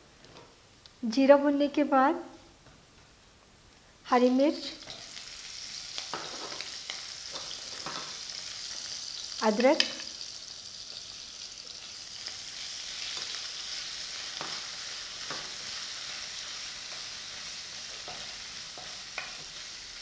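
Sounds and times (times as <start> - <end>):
spices sizzling in hot oil: 4.1 - 20.0
wooden spatula scraping and tapping: 18.0 - 19.6.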